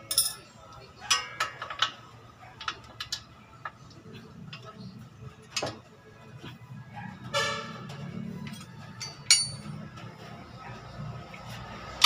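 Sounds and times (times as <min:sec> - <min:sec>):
metal tools clinking on concrete: 0:00.0 - 0:02.0, 0:08.4 - 0:09.8.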